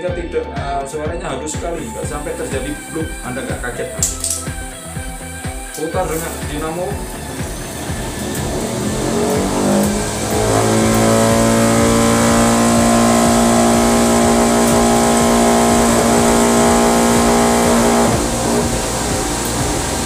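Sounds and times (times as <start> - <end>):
electric motor whine: 6.3 - 20.0.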